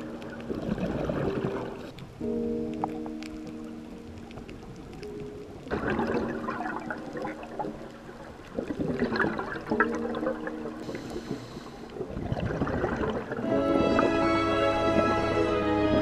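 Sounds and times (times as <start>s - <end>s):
underwater exhaled bubbles gurgling: 0.0s - 16.0s.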